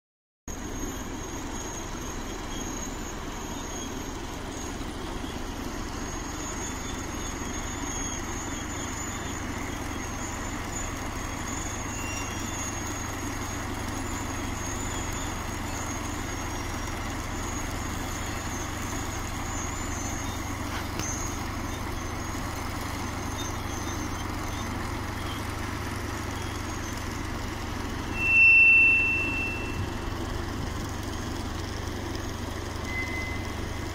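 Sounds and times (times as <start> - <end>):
locomotive engine and running gear rumble: 0.5 - 33.9
loud high-pitched tone: 28.0 - 30.6, 32.8 - 33.9.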